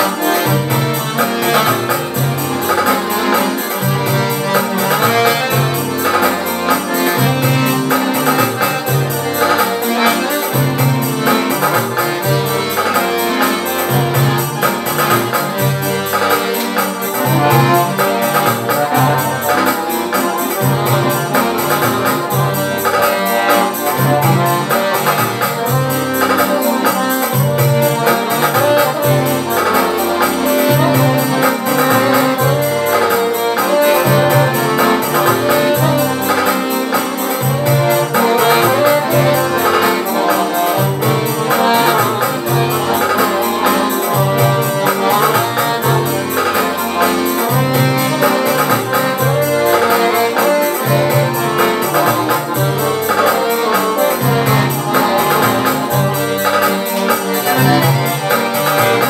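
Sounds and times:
accordion playing lively tune: 0.0s - 59.0s.

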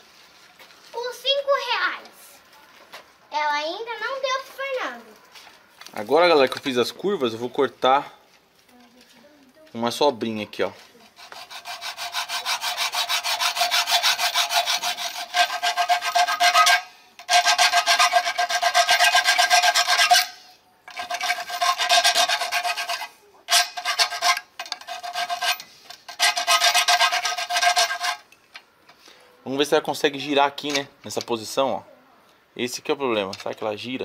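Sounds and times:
pipe cutter scraping copper pipe: 11.0s - 28.3s.

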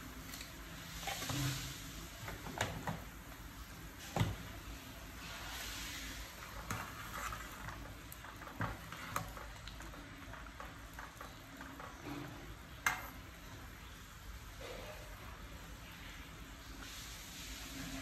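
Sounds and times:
broth bubbling in a pot: 0.0s - 18.0s
ladle stirring broth: 5.1s - 13.8s.

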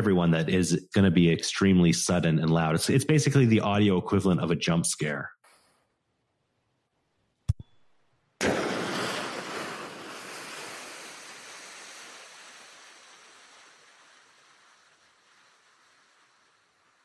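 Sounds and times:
underwater implosion crash: 8.4s - 11.5s
long hiss of bubbles: 8.4s - 17.0s.

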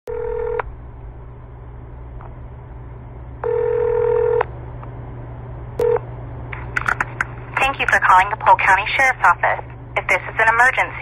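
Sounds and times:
telephone ringback tone: 0.1s - 0.6s, 3.4s - 4.4s, 5.8s - 6.0s
low line hum: 0.1s - 11.0s.

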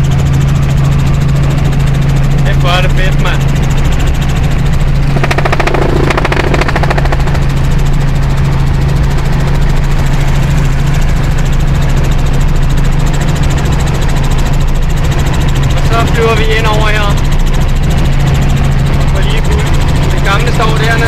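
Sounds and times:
helicopter rotor drone: 0.0s - 21.0s
higher buzzing: 3.1s - 8.8s.

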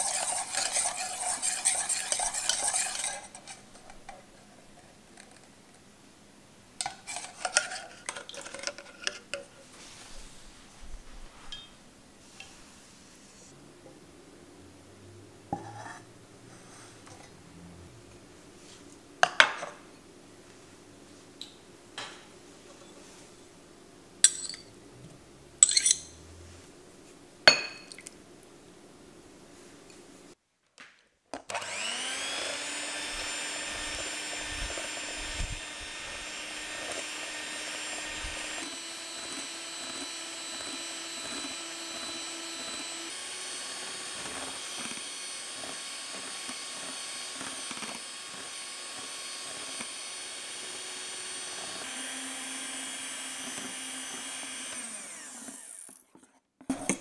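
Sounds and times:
glass bowl clinking on steel pan: 27.5s - 28.0s
electric mixer whining: 31.5s - 56.1s.

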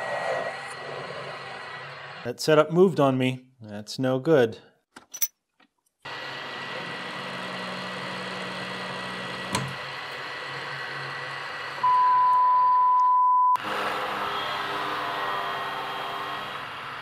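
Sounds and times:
milling machine humming: 6.1s - 12.1s
censor bleep tone: 11.8s - 13.6s.

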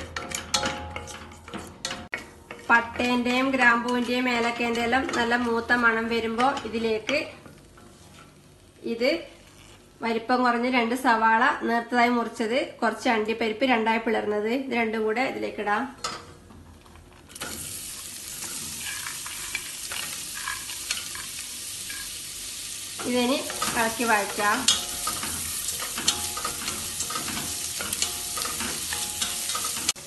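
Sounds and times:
onions sizzling in hot ghee: 17.3s - 30.0s.

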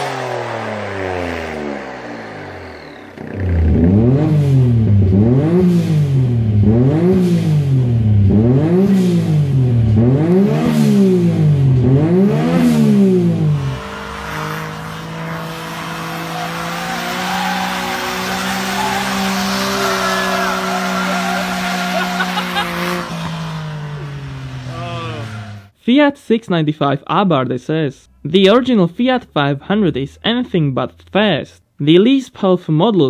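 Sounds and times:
car engine revving: 0.0s - 25.8s
tyre noise: 13.6s - 25.7s.

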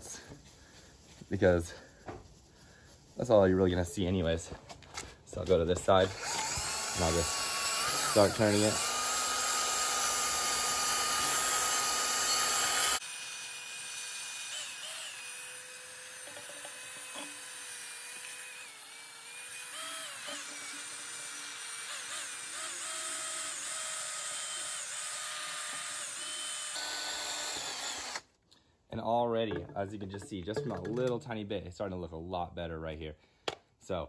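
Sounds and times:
drill motor whine: 6.0s - 28.2s
polishing pad buffing metal pipe: 6.2s - 13.1s.

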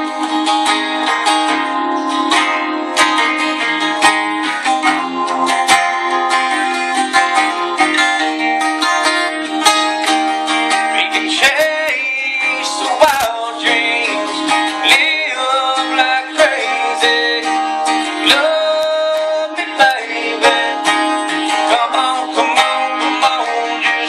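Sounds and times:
acoustic guitar picking lead line: 0.0s - 24.0s
acoustic guitar strumming chords: 0.0s - 24.0s
man singing: 10.7s - 24.0s.

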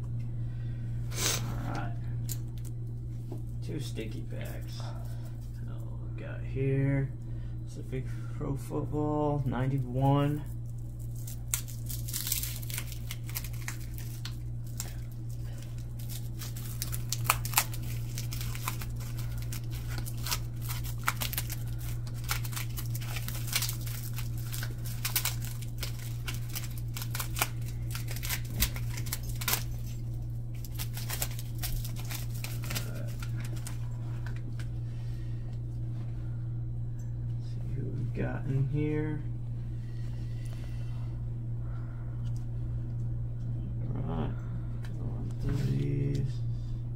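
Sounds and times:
low hum: 0.0s - 46.9s
wrapper crinkling: 10.4s - 34.6s.

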